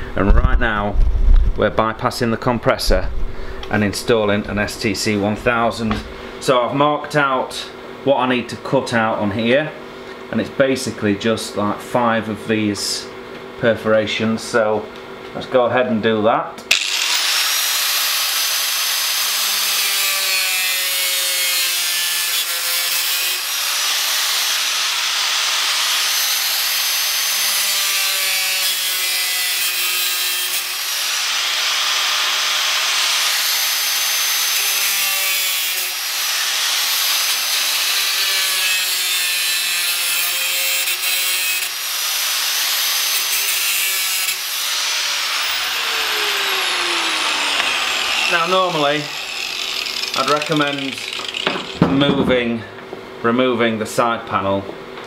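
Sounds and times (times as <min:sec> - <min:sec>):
angle grinder cutting sheet metal: 0:16.7 - 0:51.9.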